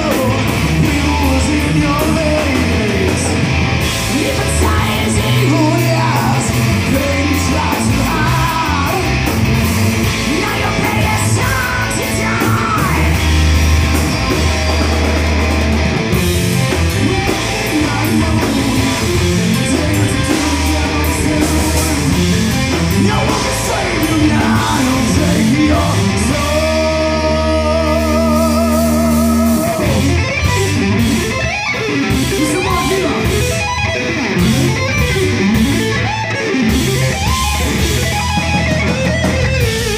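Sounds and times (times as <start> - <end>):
man singing: 0.0 - 9.3, 10.2 - 13.4, 17.1 - 30.3, 32.3 - 33.4
bass guitar: 0.0 - 39.9
distorted electric guitar: 0.0 - 39.9
drum kit: 0.0 - 39.9.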